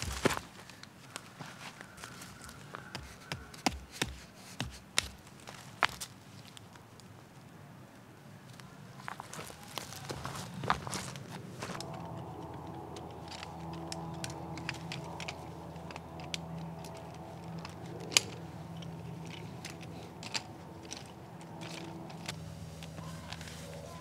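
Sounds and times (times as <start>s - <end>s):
chair frame poles clicking: 11.8s - 23.5s.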